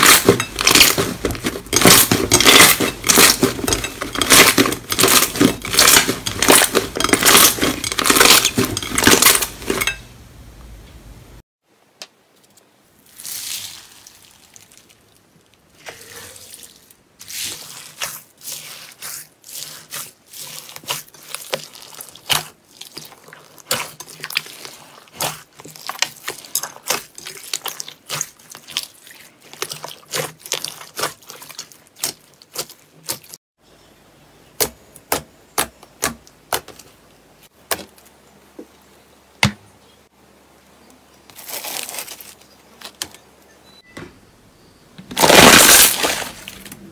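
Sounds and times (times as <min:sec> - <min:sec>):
slime popping and crackling: 0:45.2 - 0:46.7.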